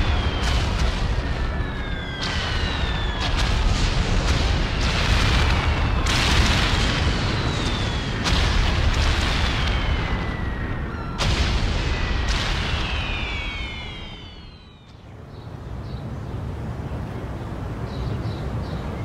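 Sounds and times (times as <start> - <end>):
falling whistles: 0.0 - 8.6, 9.2 - 15.0
deep rumble: 0.0 - 14.7
cannon fire: 0.0 - 14.8.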